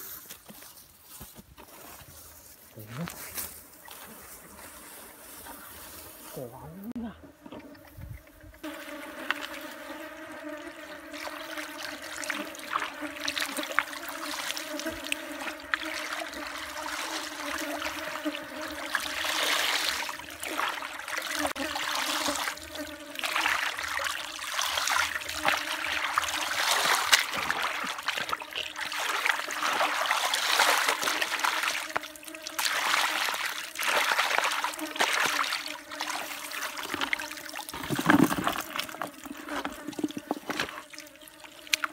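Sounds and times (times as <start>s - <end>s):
muddy water sloshing and splashing: 11.1s - 18.0s, 18.6s - 41.9s
water and mud dripping: 11.1s - 41.9s.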